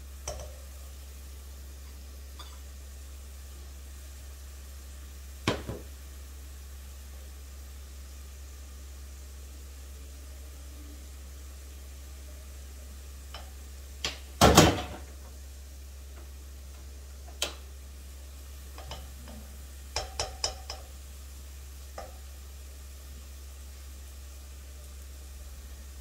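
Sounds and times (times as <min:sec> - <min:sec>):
utensils knocking on pot: 0:20.0 - 0:20.9.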